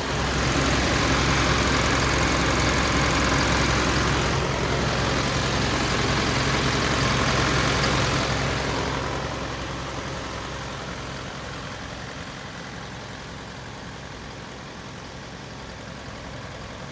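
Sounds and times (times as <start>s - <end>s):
truck engine idling: 0.0s - 16.9s.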